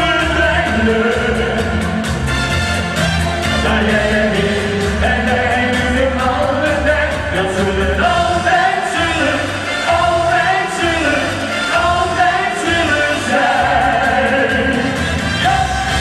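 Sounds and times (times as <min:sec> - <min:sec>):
men singing pop ballad: 0:00.0 - 0:02.2, 0:03.1 - 0:16.0
instrumental backing with bass: 0:00.0 - 0:16.0.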